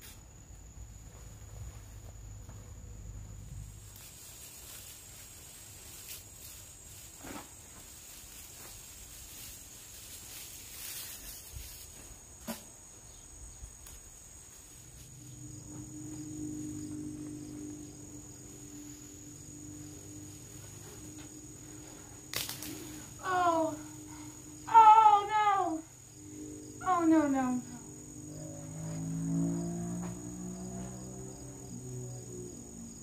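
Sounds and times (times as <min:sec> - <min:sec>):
insects trilling: 0:00.0 - 0:33.0
low steady hum: 0:14.8 - 0:29.0.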